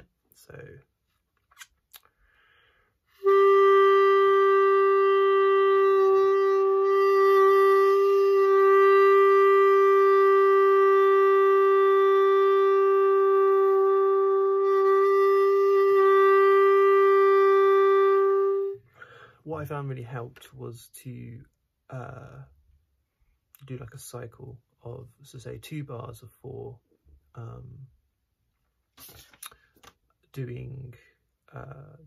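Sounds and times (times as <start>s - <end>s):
clarinet holding a long note: 3.1s - 18.9s.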